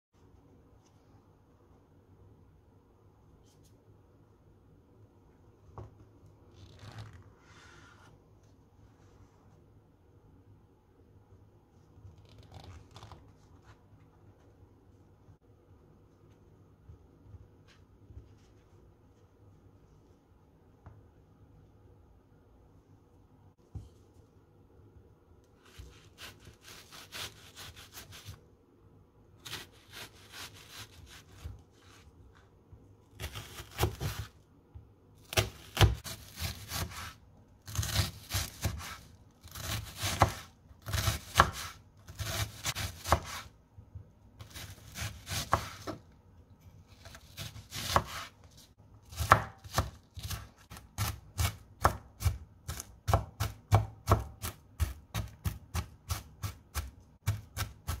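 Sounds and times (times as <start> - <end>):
knife chopping on wooden board: 33.2 - 34.3, 35.3 - 43.5, 44.4 - 46.0, 47.0 - 48.3, 49.1 - 58.0.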